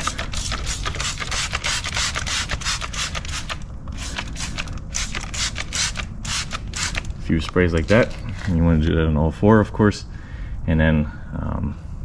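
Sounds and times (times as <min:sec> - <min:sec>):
spray bottle hissing: 0:00.0 - 0:07.1.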